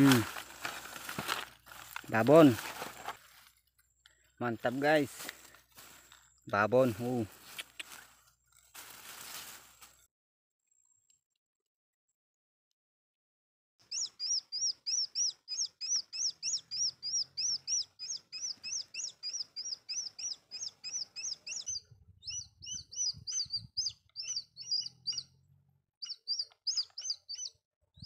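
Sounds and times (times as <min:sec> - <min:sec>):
bird chirping rapidly: 0:13.8 - 0:25.4, 0:26.0 - 0:28.0.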